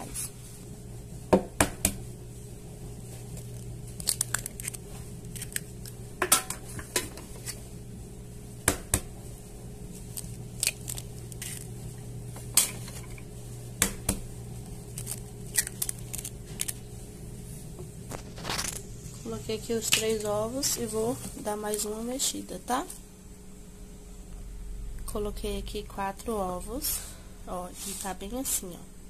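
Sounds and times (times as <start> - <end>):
eggs cracking: 3.4 - 6.3, 10.0 - 11.8, 14.8 - 16.8.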